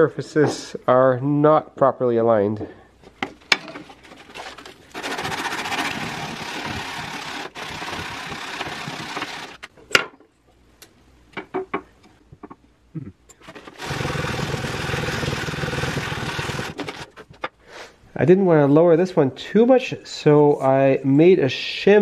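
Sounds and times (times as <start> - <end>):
wood rubbing on sandpaper: 4.1 - 9.6.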